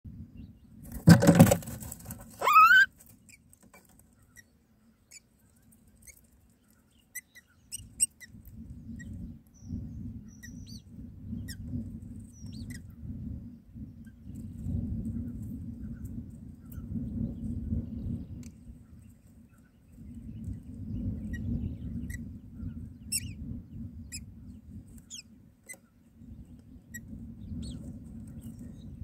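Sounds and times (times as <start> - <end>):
bird call rising in pitch: 2.4 - 2.9
nestlings begging squeaks: 2.4 - 3.4, 7.1 - 8.4.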